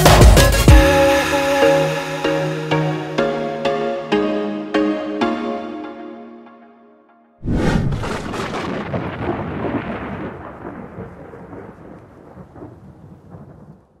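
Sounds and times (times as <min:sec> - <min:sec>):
thunderclap: 0:07.4 - 0:14.0.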